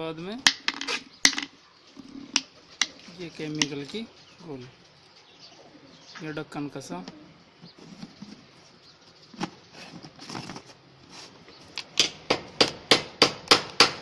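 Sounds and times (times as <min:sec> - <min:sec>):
rustles: 0:00.7 - 0:06.3, 0:07.0 - 0:12.0.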